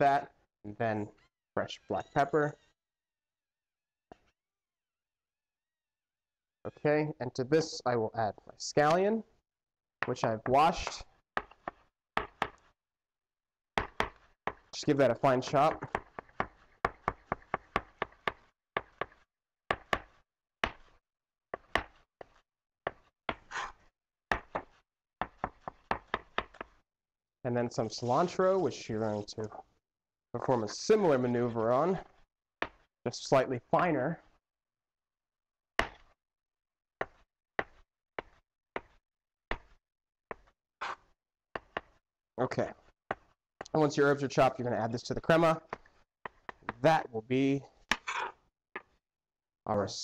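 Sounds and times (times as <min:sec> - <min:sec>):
knife chopping on wooden board: 0:10.8 - 0:12.6, 0:13.8 - 0:14.7, 0:15.7 - 0:20.9, 0:21.6 - 0:26.7, 0:35.8 - 0:36.1, 0:37.0 - 0:41.0, 0:41.6 - 0:42.0.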